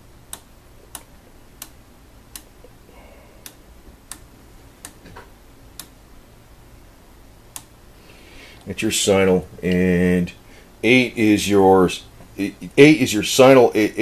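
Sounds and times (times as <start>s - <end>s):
oscilloscope control clicks: 0.3s - 2.8s, 3.4s - 6.0s, 7.5s - 7.8s.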